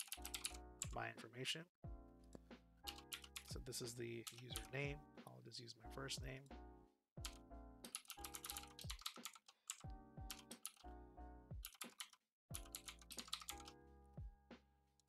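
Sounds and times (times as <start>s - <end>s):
computer keyboard typing: 0.0s - 1.0s, 2.9s - 4.9s, 7.2s - 10.9s, 11.6s - 13.8s
soft background music: 0.0s - 15.0s.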